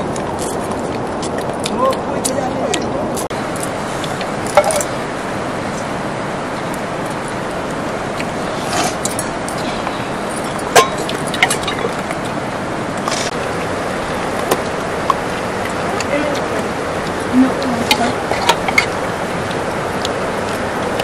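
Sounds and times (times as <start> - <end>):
river rushing: 0.0 - 21.0
steel plates and bowls clinking: 4.4 - 5.0, 8.5 - 12.1.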